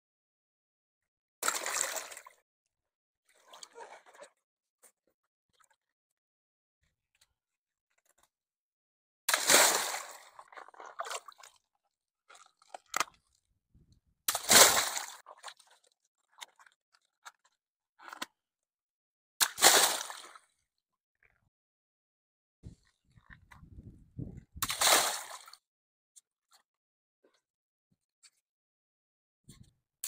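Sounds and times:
water dripping and sloshing: 1.4s - 2.4s, 9.3s - 13.4s, 14.3s - 18.3s
water splashing: 1.4s - 2.4s, 9.3s - 11.6s, 14.3s - 15.7s, 24.6s - 25.6s.

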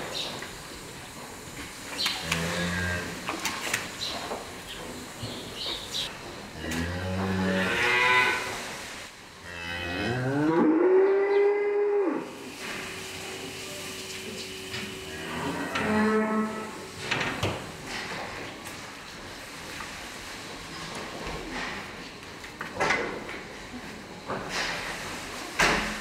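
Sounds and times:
cows mooing: 6.6s - 8.6s, 9.4s - 13.0s, 14.4s - 16.9s.

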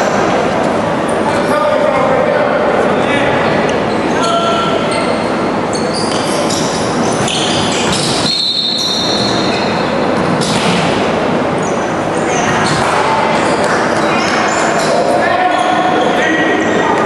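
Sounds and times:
sneakers squeaking on court: 3.6s - 16.9s
basketball bouncing: 7.2s - 8.4s.

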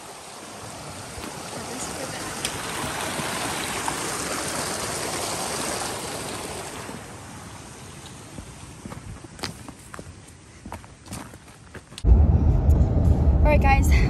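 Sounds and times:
creek rushing over rocks: 0.0s - 9.4s.

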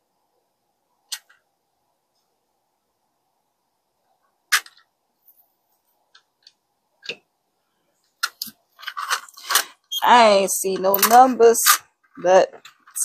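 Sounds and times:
plastic parts clicking: 8.2s - 9.8s, 10.7s - 13.0s.

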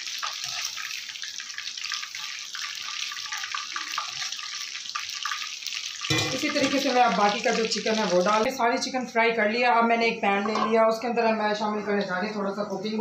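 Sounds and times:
chicken deep-frying in oil: 0.0s - 9.0s.

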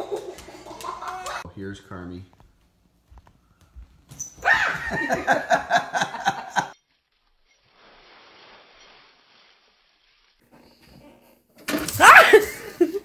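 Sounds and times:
faint steady hiss: 6.9s - 11.4s
dog yapping: 11.9s - 12.5s.

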